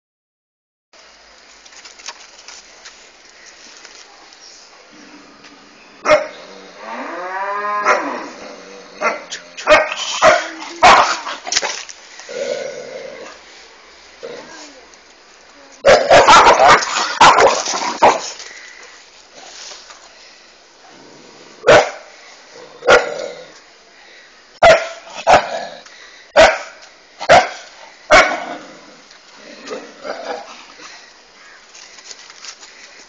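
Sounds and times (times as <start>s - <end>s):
dog barking: 6.0s - 6.4s, 9.0s - 11.2s, 15.9s - 17.6s, 21.6s - 22.1s, 22.9s - 23.2s, 24.6s - 25.5s, 26.4s - 28.4s.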